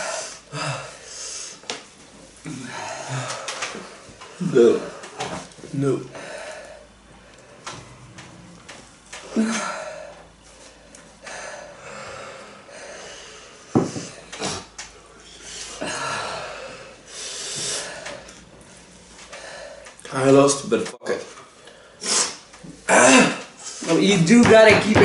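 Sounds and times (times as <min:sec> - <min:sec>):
people breathing hard and wheezing: 0:00.0 - 0:01.8, 0:02.4 - 0:05.5, 0:06.1 - 0:08.5, 0:09.2 - 0:20.0
knocks: 0:24.4 - 0:25.0.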